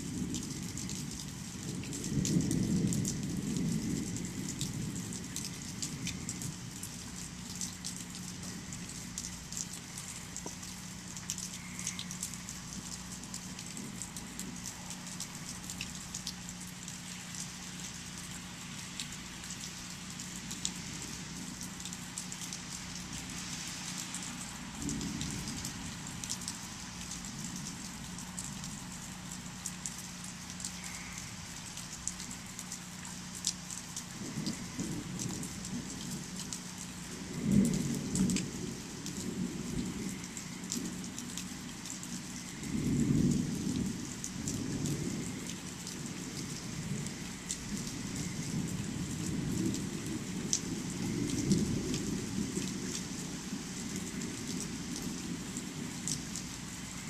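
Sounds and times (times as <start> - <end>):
rain pattering: 0.0 - 57.0
thunder rumbling: 0.1 - 8.8.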